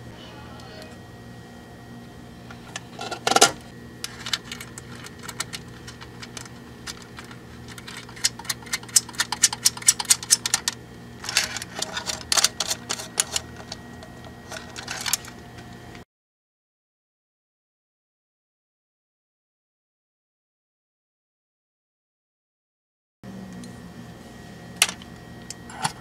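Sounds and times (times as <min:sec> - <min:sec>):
wires clicking and rustling on metal: 0:02.6 - 0:15.8.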